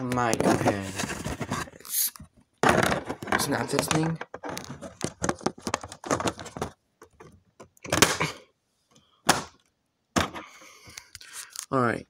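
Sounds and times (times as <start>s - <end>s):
plastic scraping rustles: 0.1s - 1.8s, 2.6s - 8.2s
plastic clicks and knocks: 2.6s - 8.2s.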